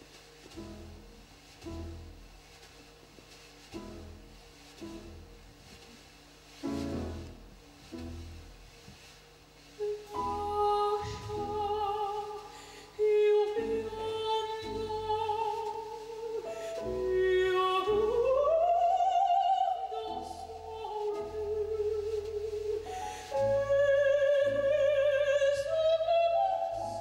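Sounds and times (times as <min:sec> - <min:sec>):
grand piano accompaniment: 0:00.0 - 0:27.0
operatic soprano singing: 0:09.8 - 0:27.0.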